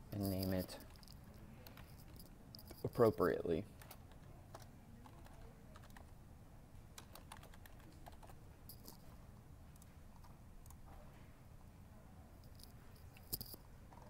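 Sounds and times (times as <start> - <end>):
keyboard keys clicking: 7.0 - 8.4.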